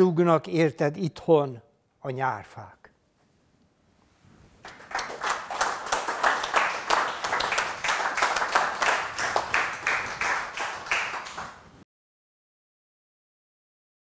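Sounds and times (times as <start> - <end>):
audience applauding: 4.6 - 11.8.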